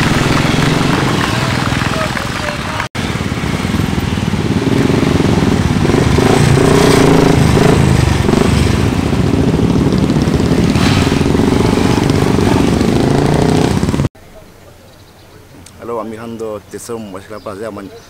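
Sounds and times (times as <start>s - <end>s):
motorcycles passing at low speed: 0.0s - 14.1s.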